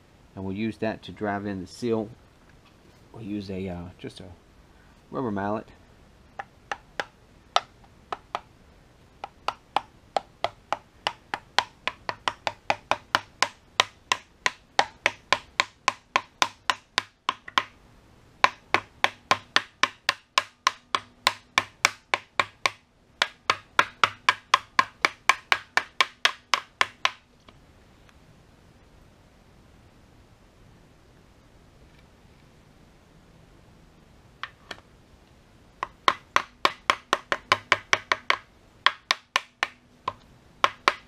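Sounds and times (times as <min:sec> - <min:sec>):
rubber mallet tapping a tool: 0:06.4 - 0:08.5, 0:09.2 - 0:17.8, 0:18.4 - 0:27.2, 0:35.8 - 0:41.0.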